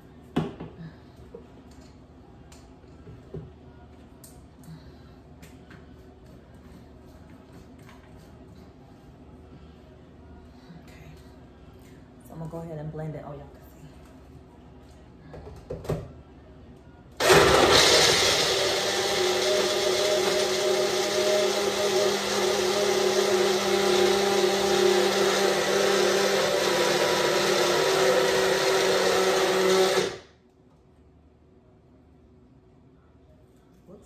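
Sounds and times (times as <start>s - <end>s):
blender motor running: 17.2s - 30.3s.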